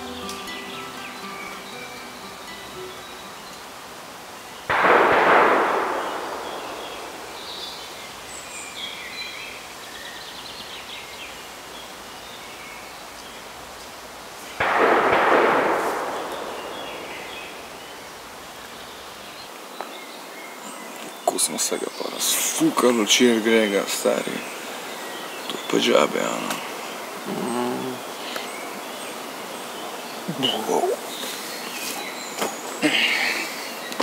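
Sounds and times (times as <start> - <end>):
faint bird chirps: 5.9 - 13.5, 16.0 - 34.0.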